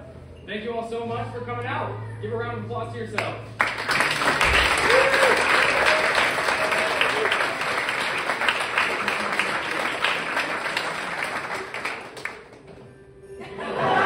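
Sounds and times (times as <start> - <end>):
audience applauding: 3.6 - 12.7.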